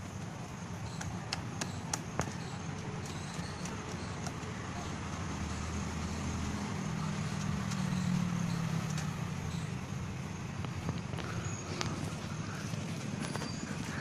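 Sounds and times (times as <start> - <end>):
outdoor background noise: 0.0 - 14.0
vehicle engine rumble: 0.0 - 14.0.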